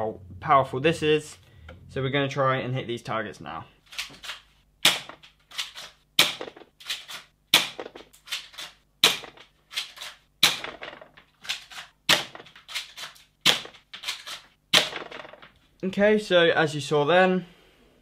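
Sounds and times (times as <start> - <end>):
pellets striking plastic target: 4.8 - 6.8, 7.5 - 9.6, 10.4 - 15.6.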